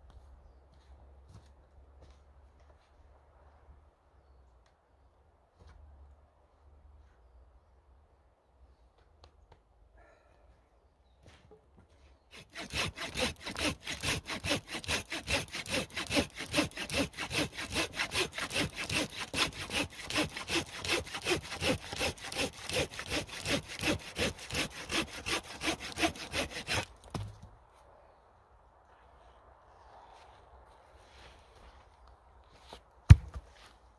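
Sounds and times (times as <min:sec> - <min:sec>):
hand saw cutting log: 0:12.3 - 0:27.3.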